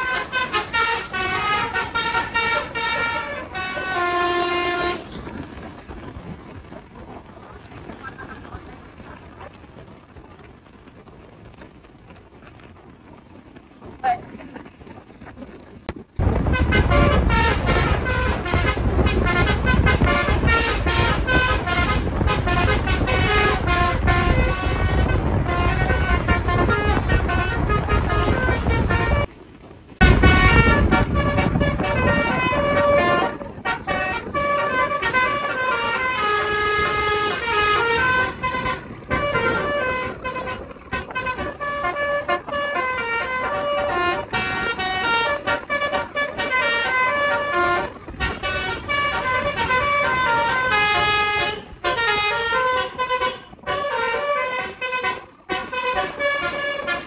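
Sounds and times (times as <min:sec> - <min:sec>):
musical air horn melody: 0:00.0 - 0:05.2, 0:16.2 - 0:29.3, 0:30.0 - 0:57.0
bus engine rumble: 0:00.0 - 0:57.0.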